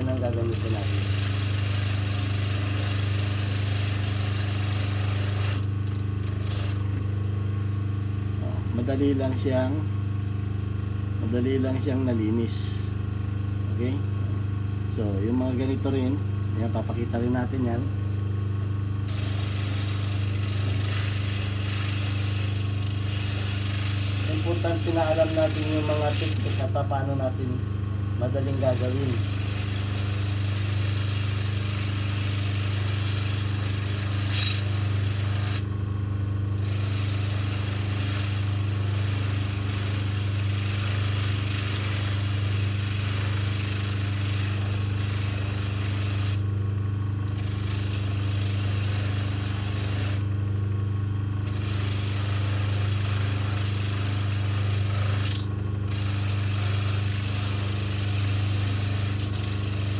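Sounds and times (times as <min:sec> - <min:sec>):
bench motor humming: 0:00.0 - 0:09.8, 0:19.0 - 0:27.5, 0:28.1 - 0:46.5, 0:47.2 - 0:50.3, 0:51.4 - 0:59.9
metal rasping on sandpaper: 0:19.1 - 0:26.7, 0:28.4 - 0:35.6.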